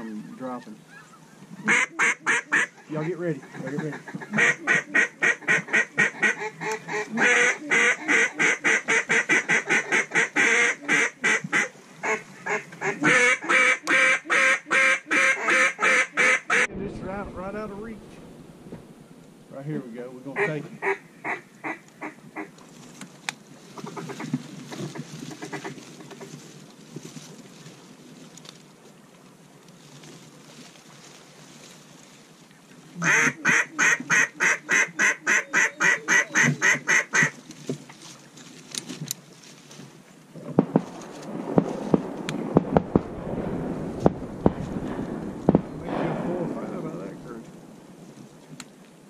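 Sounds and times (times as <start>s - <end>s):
duck quacks: 1.6s - 16.7s, 33.0s - 37.3s
noisy rustle: 16.6s - 33.0s, 36.4s - 49.0s.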